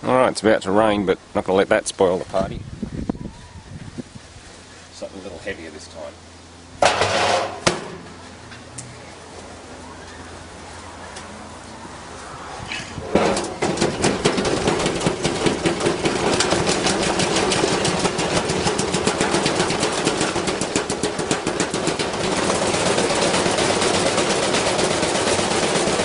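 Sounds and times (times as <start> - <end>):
object clattering in drum: 6.8 - 8.1, 13.0 - 26.0
washing machine spinning: 13.2 - 26.0.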